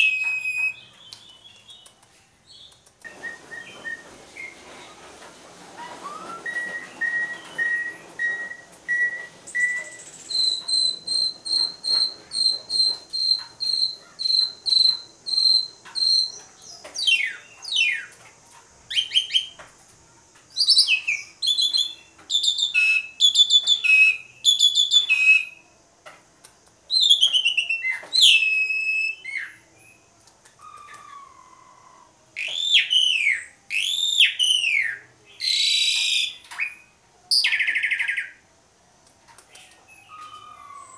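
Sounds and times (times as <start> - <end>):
starling singing: 0.0 - 1.9, 5.8 - 18.1, 20.6 - 25.6, 26.9 - 38.4, 39.6 - 40.9.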